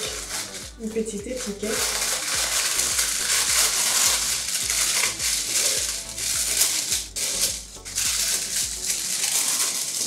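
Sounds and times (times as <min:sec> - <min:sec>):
background music with steady beat: 0:00.0 - 0:10.0
tissue paper and cardboard rustling: 0:00.0 - 0:10.0.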